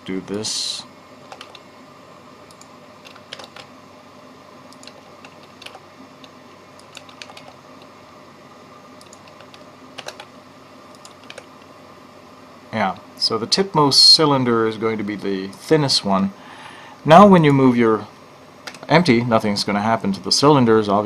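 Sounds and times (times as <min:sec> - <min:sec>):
faint steady hum: 0:00.0 - 0:21.0
keyboard keys clicking: 0:01.3 - 0:01.6, 0:02.5 - 0:03.7, 0:04.7 - 0:07.6, 0:09.0 - 0:10.3, 0:10.9 - 0:11.5.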